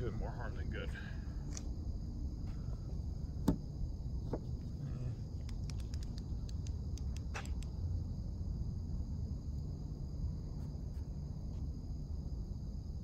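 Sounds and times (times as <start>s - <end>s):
night insects chirring: 0.0s - 13.0s.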